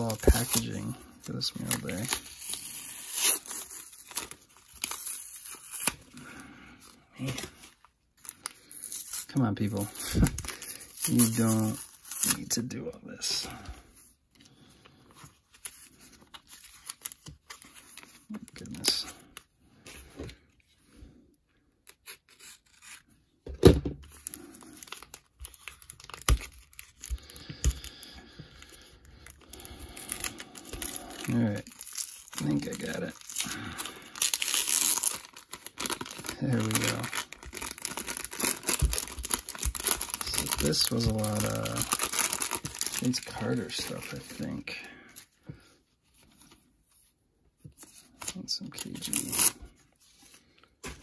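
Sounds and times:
tape being peeled and torn: 0.0 - 6.2, 15.2 - 19.4, 21.8 - 23.2, 24.0 - 27.9, 28.6 - 44.6, 47.7 - 51.0
plastic crinkling: 24.1 - 44.8.

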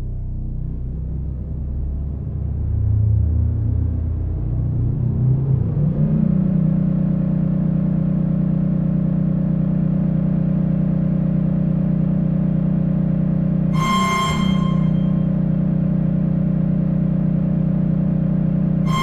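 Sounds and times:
synthesizer low buzzing drone: 13.7 - 15.9.

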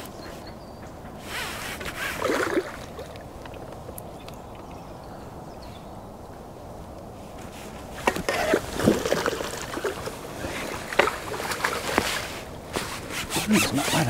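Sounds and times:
water splashing and sloshing: 1.0 - 4.9, 7.4 - 14.0.

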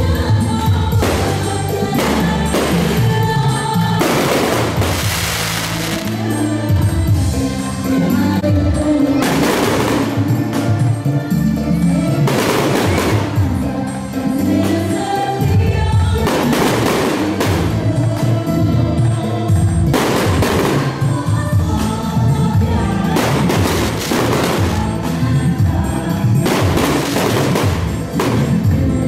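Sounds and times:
choral music: 0.0 - 29.0
firework bursts crackling: 1.0 - 6.4, 16.3 - 17.9, 19.9 - 21.2, 23.1 - 25.2, 26.4 - 28.6.

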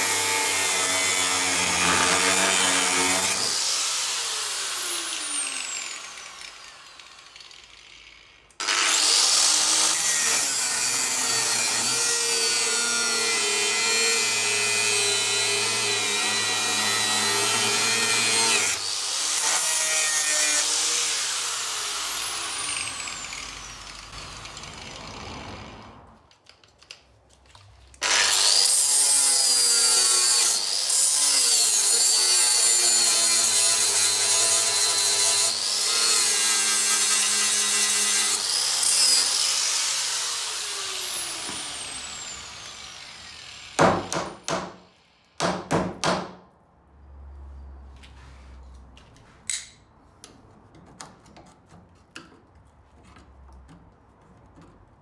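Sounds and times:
angle grinder cutting steel: 0.0 - 25.5, 28.0 - 43.8.

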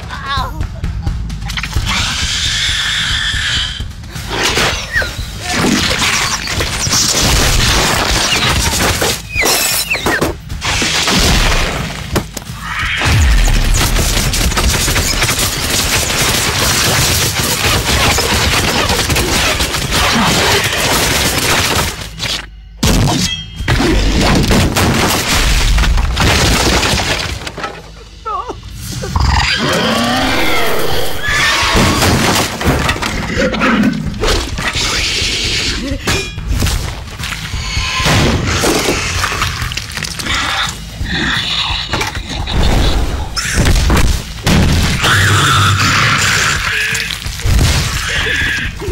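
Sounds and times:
action film music: 0.0 - 48.9
crashing and breaking noise: 5.4 - 28.0, 31.6 - 33.4, 36.4 - 40.9.

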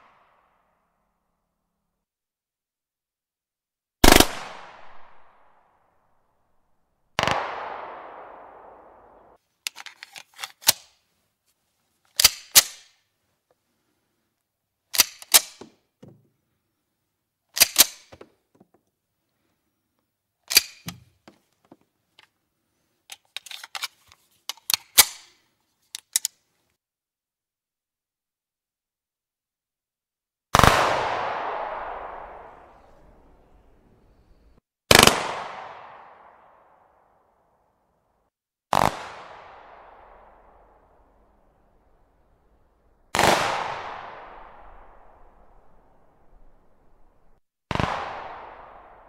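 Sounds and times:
pistol shots: 4.0 - 5.3, 7.2 - 9.0, 47.7 - 49.0
pistol action metallic clicks: 14.9 - 15.6, 17.6 - 18.1, 20.5 - 21.0.

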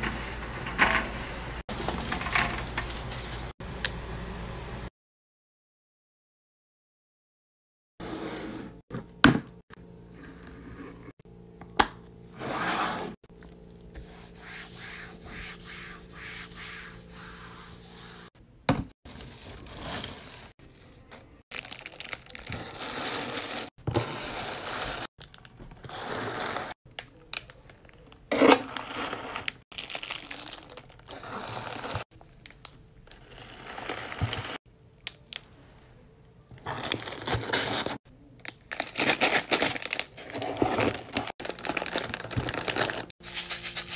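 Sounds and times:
plastic bags and paper crinkling: 21.5 - 22.9, 29.4 - 34.6, 36.5 - 43.9.

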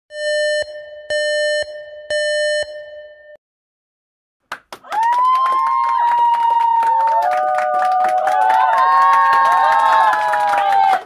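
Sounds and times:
overlapping held cries: 4.8 - 11.0.

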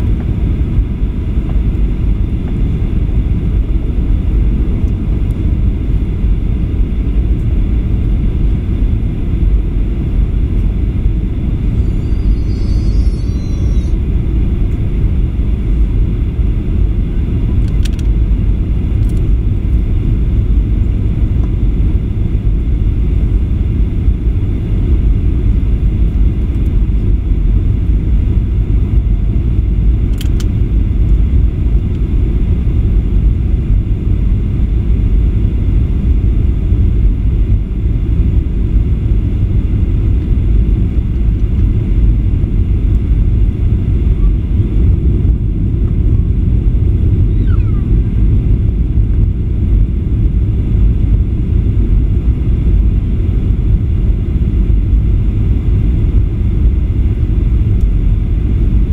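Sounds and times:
jet engine cabin rumble: 0.0 - 58.9.

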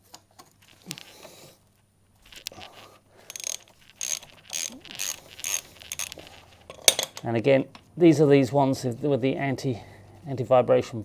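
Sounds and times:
ratchet wrench clicking: 3.3 - 7.2.

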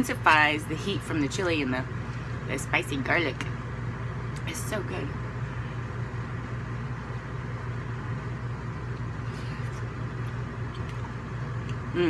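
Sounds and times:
low hum: 0.0 - 12.0
faint mouth sounds: 10.7 - 12.0.

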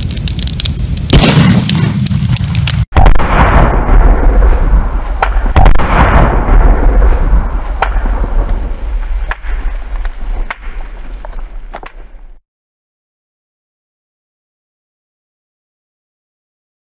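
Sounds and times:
explosion blast with deep rumble: 0.0 - 12.4.

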